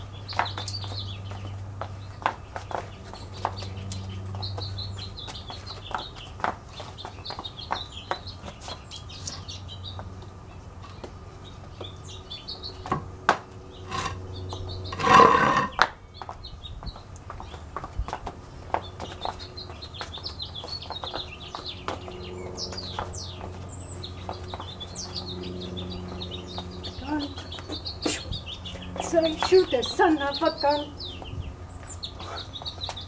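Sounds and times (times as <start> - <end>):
small birds chirping: 0.0 - 13.0, 13.6 - 33.0
high heels tapping on stone: 0.3 - 8.8.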